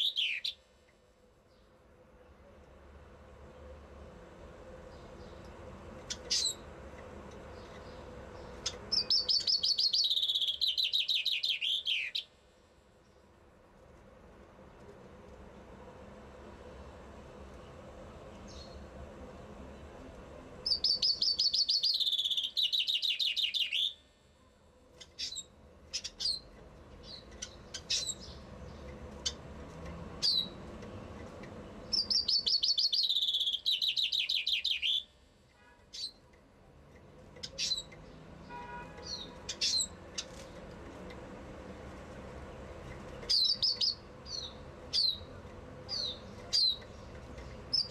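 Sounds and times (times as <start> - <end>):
chaffinch trilling song: 0.0 - 0.6, 7.5 - 12.4, 20.6 - 24.0, 30.2 - 30.6, 31.8 - 35.1, 43.3 - 47.9.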